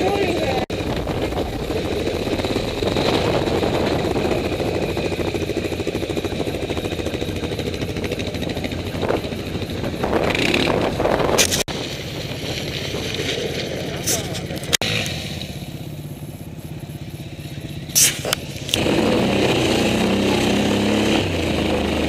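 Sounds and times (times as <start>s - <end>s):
rush of noise: 0.0s - 15.6s
quad bike engine drone: 0.0s - 22.0s
tyres on loose gravel: 0.5s - 15.6s.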